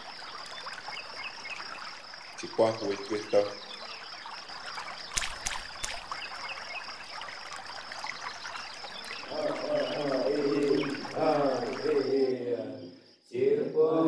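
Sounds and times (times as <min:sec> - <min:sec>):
water splashes: 0:00.0 - 0:12.3
water trickling and sloshing: 0:00.0 - 0:12.3
person chanting: 0:09.3 - 0:14.0.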